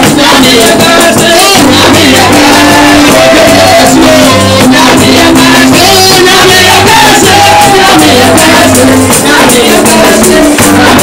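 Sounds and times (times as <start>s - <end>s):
band playing: 0.0s - 11.0s
steady percussion beat: 0.0s - 11.0s
voices singing: 0.0s - 11.0s.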